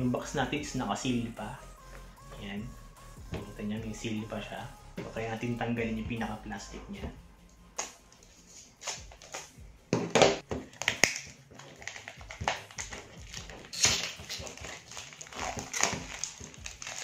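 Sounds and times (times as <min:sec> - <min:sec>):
plastic wrap crinkling: 0:07.8 - 0:17.0.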